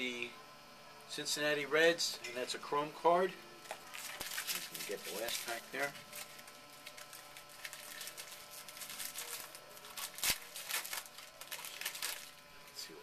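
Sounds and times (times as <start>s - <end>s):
cards and wrapper crinkling: 3.6s - 13.0s.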